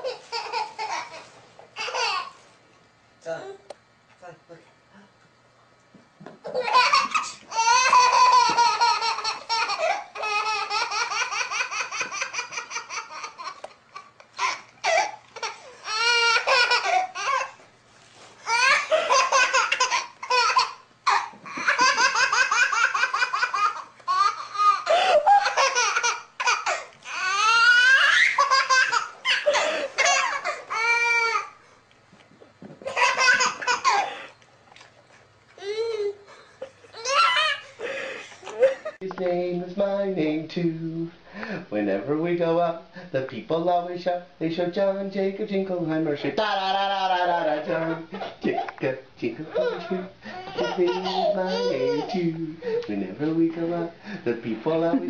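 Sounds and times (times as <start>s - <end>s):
baby laughing: 0.0s - 2.4s, 6.4s - 17.6s, 18.5s - 31.6s, 32.8s - 34.3s, 35.6s - 39.0s, 46.4s - 48.8s, 49.5s - 52.9s.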